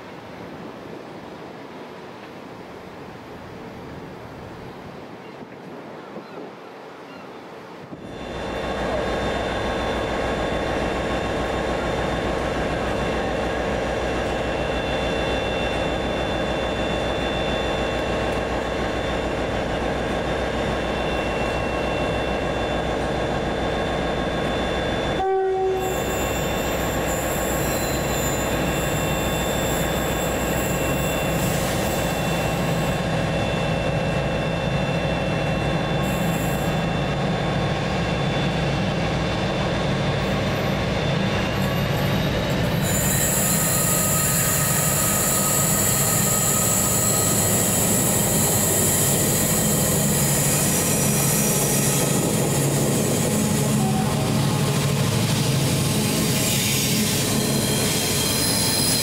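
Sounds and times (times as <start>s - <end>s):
locomotive running: 7.9s - 59.0s
thin high squeal: 23.6s - 37.2s, 40.3s - 59.0s.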